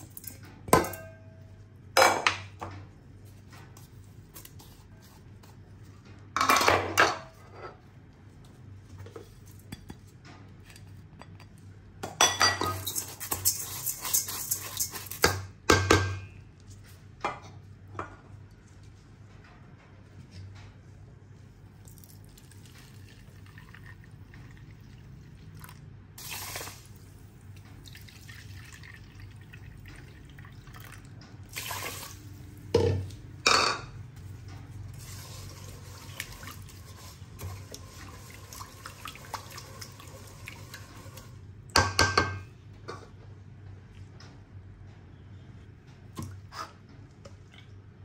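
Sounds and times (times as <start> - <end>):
water pouring and dripping: 21.8 - 32.3, 34.9 - 41.4.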